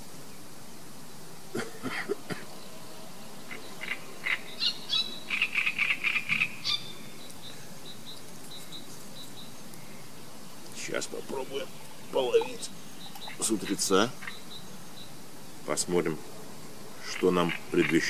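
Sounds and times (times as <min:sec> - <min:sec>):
bird chirping and trilling: 0:02.5 - 0:15.8.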